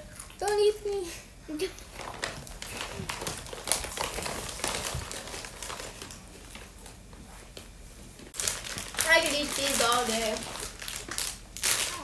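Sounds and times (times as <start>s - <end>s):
plastic packets crinkling: 1.7s - 7.0s, 8.4s - 12.0s.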